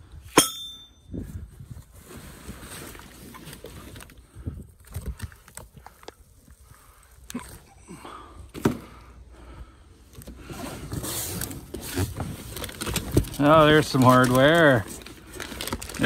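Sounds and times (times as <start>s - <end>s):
cardboard packaging being handled: 10.2s - 16.0s.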